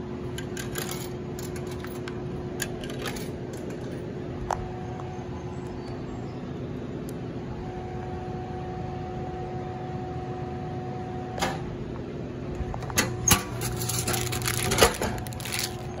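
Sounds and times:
vending machine motor humming: 0.0 - 16.0
clunks and rattling at delivery bin: 13.0 - 16.0.

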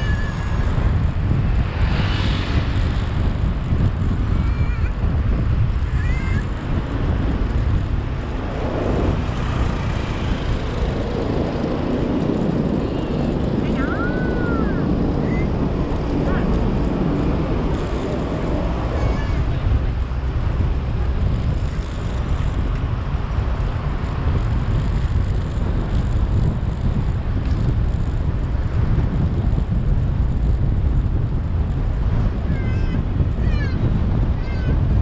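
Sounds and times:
road traffic noise: 0.0 - 35.0
wind rumble on microphone: 0.0 - 35.0.

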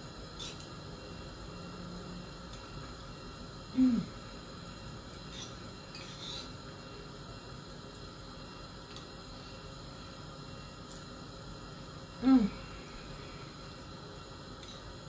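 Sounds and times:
person humming mm of enjoyment: 3.7 - 4.2, 12.2 - 12.7.

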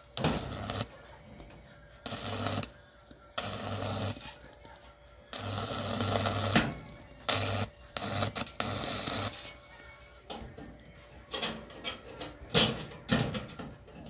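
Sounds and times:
welding arc buzzing and crackling: 0.0 - 1.0, 2.0 - 10.3.

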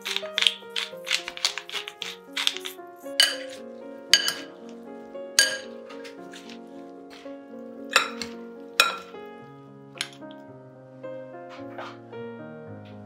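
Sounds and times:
utensils clinking against glass bowl: 0.0 - 4.6, 5.4 - 6.6, 7.9 - 9.1
background music: 0.0 - 13.0.

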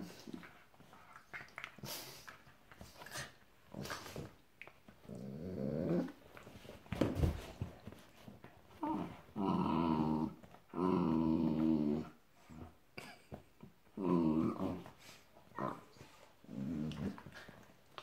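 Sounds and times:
dogs growling: 5.0 - 6.3, 8.8 - 12.8, 14.0 - 17.6
dogs scuffling: 6.2 - 9.4.

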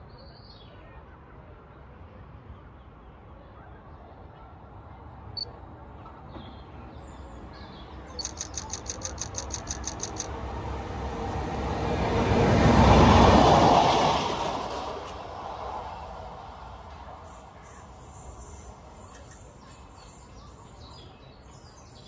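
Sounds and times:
train passing: 7.4 - 20.7
quick high chirps: 8.2 - 10.3.

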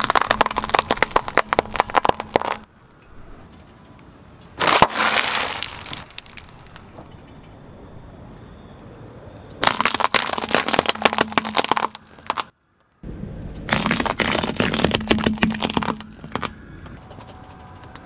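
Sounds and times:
walnuts cracking under car tire: 0.0 - 2.7, 4.6 - 7.0, 9.6 - 12.5, 13.7 - 16.6.

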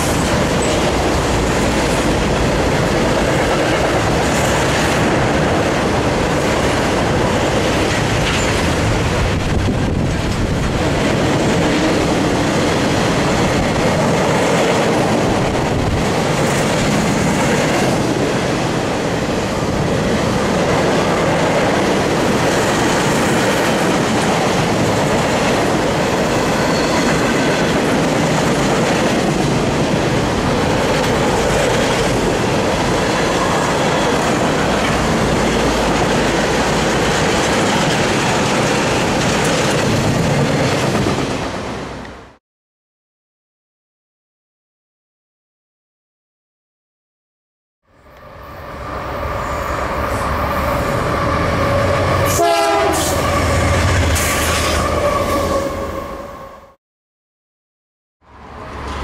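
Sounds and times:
freight train wheels clattering: 20.1 - 41.5.

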